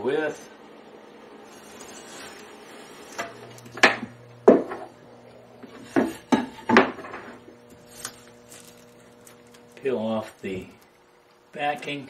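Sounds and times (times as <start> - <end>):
wooden boards knocking on workbench: 3.8 - 4.9, 5.8 - 7.4.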